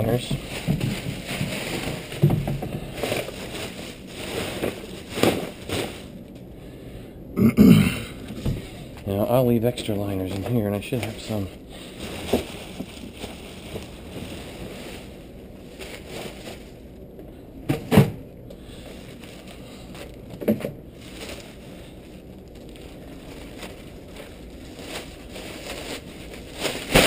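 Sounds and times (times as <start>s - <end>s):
plastic bags rustling: 0.0s - 6.4s, 8.2s - 17.1s, 18.6s - 27.0s.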